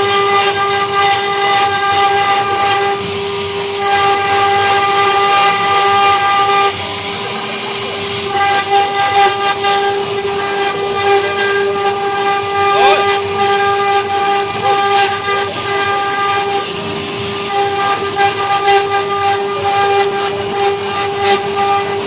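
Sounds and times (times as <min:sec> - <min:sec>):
router spindle whining: 0:00.0 - 0:22.0.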